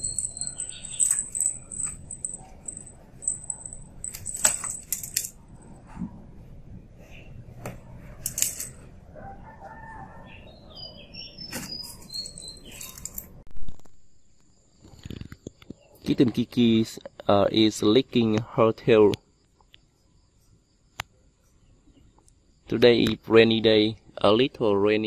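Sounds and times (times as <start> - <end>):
toy bells jingling: 0.0 - 5.3.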